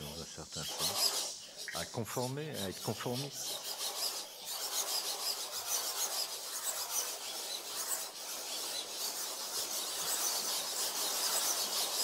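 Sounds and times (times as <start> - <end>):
pens scratching on paper: 0.0 - 12.0.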